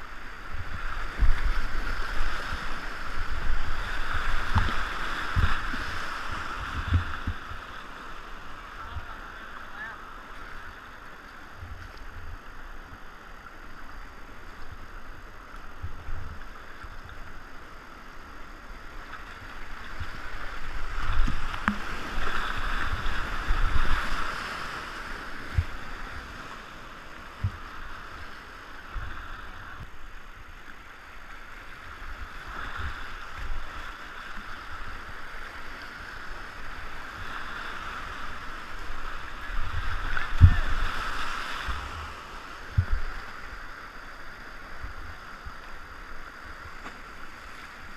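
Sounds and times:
whitewater rapids rushing: 0.0s - 11.2s, 31.6s - 46.5s.

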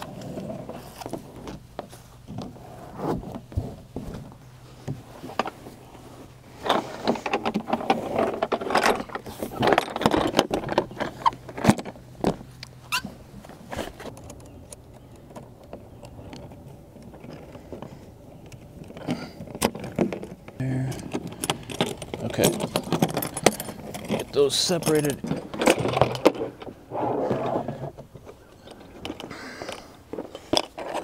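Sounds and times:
steel cable and hooks clinking: 18.5s - 26.4s
plastic sheet scraping and flapping: 26.2s - 28.0s.

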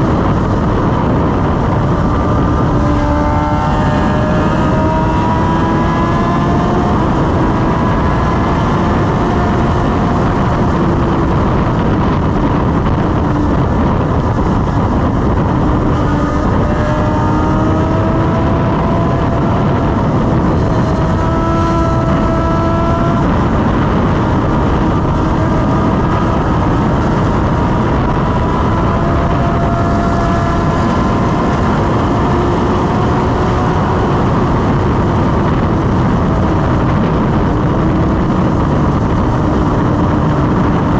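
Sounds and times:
motorcycle engine hum: 0.0s - 40.9s
wind rushing on microphone: 0.0s - 40.9s.

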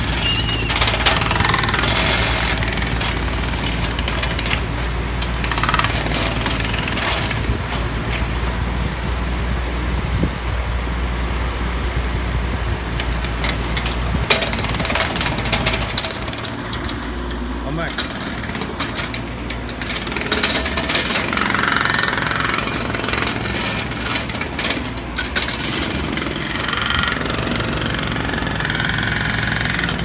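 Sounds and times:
hydraulic breaker hammering road: 0.0s - 8.6s, 13.1s - 30.0s
digger engine running: 0.0s - 10.1s, 10.8s - 30.0s.

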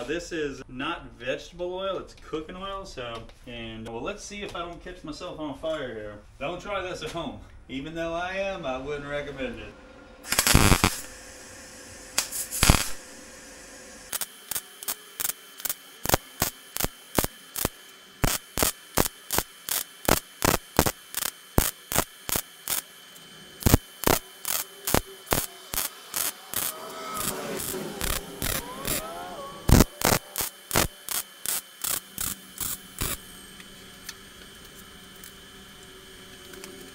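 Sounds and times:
welder arc crackling: 10.2s - 36.9s.

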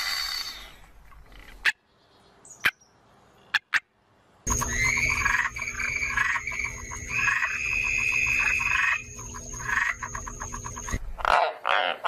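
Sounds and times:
frog pulsed trill: 4.5s - 11.0s
thin high tone: 4.5s - 11.0s
low hum: 4.5s - 11.2s
tree frogs croaking harshly: 4.5s - 12.0s.

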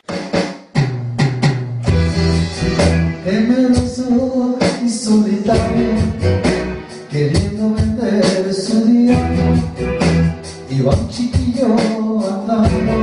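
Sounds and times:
electronic drum beat: 0.0s - 13.0s
live rock band playing: 1.0s - 13.0s
man singing: 3.1s - 13.0s.

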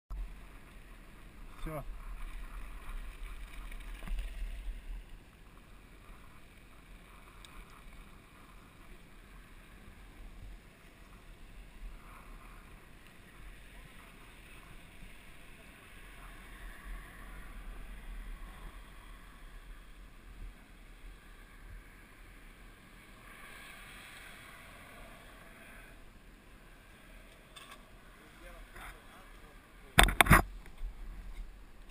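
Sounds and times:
wind noise: 30.0s - 31.9s.

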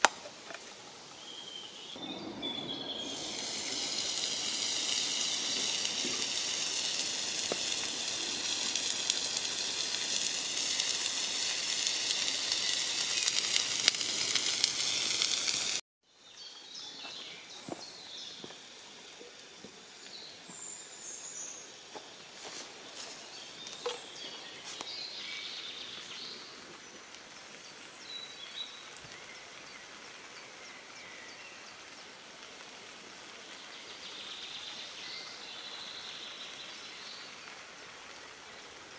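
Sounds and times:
bird chirps: 1.2s - 4.1s
steak sizzling on a grill pan: 3.0s - 15.8s.

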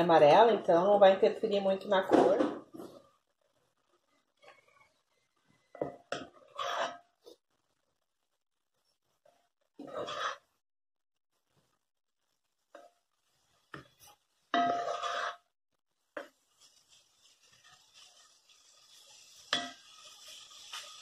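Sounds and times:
wooden spoon scraping a pot: 4.4s - 5.0s, 6.1s - 7.4s, 9.8s - 10.6s, 12.8s - 15.5s, 16.2s - 21.0s
meat sizzling: 11.4s - 21.0s.

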